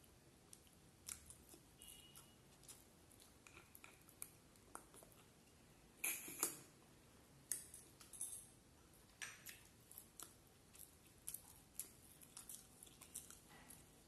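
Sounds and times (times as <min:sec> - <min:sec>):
chewing with mouth closed: 0:00.5 - 0:05.5, 0:09.0 - 0:14.0.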